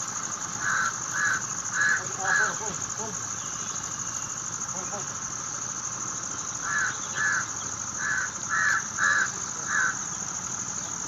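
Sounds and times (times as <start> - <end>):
high-pitched insect drone: 0.0 - 11.0
crow cawing: 0.6 - 2.8, 6.6 - 10.0.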